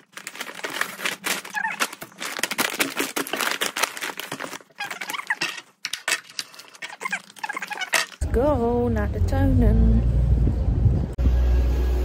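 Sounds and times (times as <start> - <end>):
packing tape squealing: 0.0 - 8.2
paper bag crinkling: 0.0 - 8.2.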